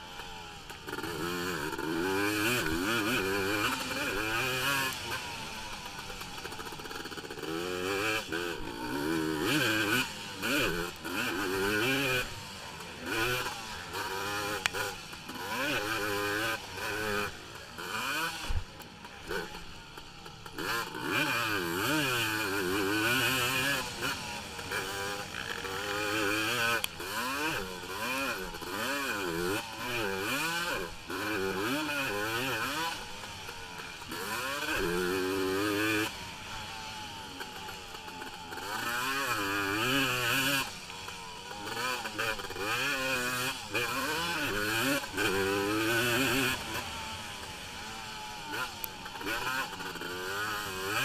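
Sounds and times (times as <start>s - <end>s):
atv engine revving: 0.0s - 51.0s.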